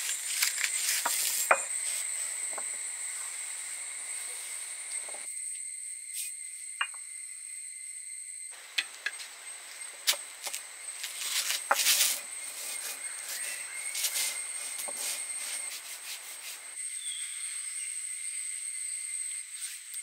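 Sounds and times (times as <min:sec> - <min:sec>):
stone roller grinding rusk: 0:00.0 - 0:02.8, 0:10.0 - 0:16.7.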